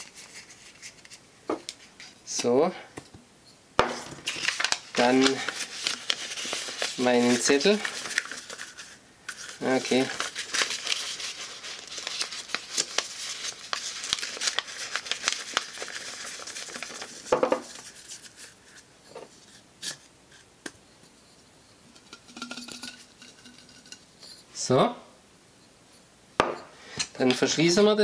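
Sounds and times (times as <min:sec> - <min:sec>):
paper rustling and crinkling: 0:00.0 - 0:02.2, 0:03.9 - 0:19.6.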